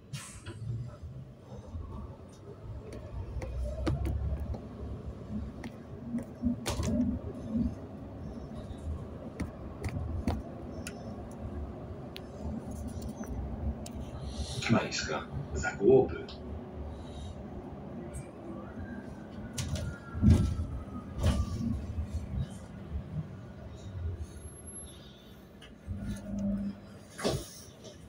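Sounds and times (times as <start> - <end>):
bus engine rumble: 0.0 - 28.0
bodywork rattling and clicking: 8.6 - 11.1.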